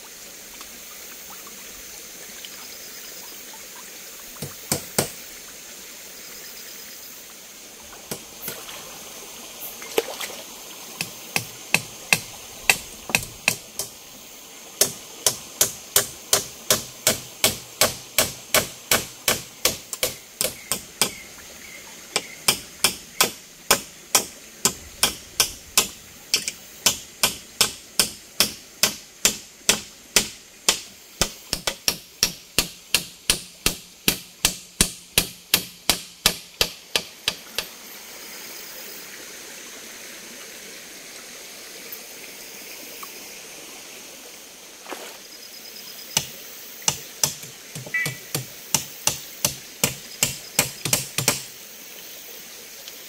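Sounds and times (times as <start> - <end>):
mountain stream rushing: 0.0 - 32.7, 36.8 - 53.0.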